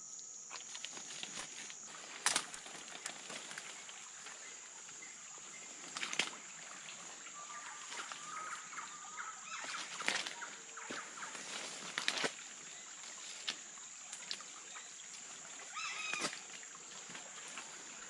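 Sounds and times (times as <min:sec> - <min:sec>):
twigs cracking: 0:00.5 - 0:04.0, 0:05.8 - 0:06.4, 0:09.6 - 0:12.4
footsteps on leaf litter and twigs: 0:00.5 - 0:04.4, 0:05.6 - 0:08.6, 0:09.5 - 0:14.5, 0:15.8 - 0:17.9
leaves brushing: 0:00.5 - 0:08.6, 0:09.5 - 0:14.6.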